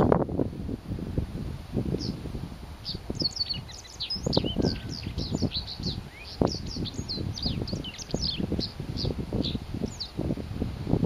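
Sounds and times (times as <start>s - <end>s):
wind on microphone: 0.0s - 11.0s
bird twittering: 2.0s - 2.2s, 2.8s - 10.2s.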